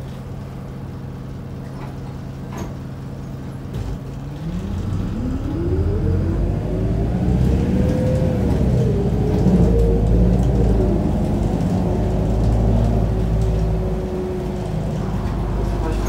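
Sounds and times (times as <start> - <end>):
bus engine revving: 3.8 - 16.0
bus diesel engine idling: 8.4 - 16.0.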